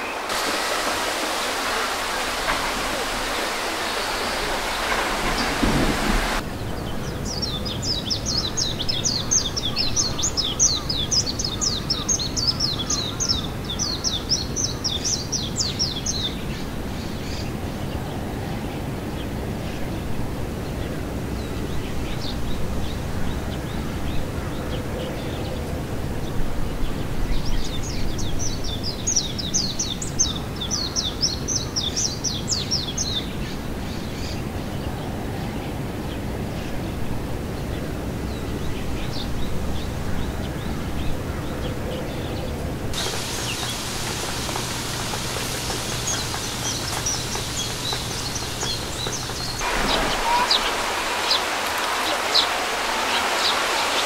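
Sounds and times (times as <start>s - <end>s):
low outdoor background noise: 0.0s - 54.0s
small bird chirping rapidly: 43.0s - 49.6s.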